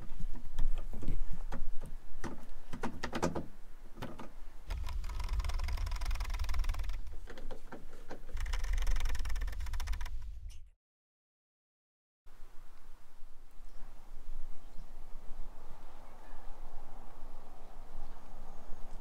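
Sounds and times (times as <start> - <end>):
screwdriver rapid ticking: 4.7 - 7.2, 8.4 - 10.2.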